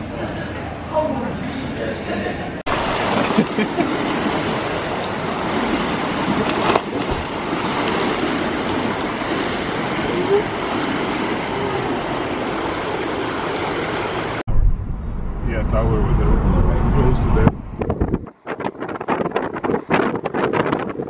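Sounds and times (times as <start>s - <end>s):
water splashing in pool: 2.7s - 14.4s.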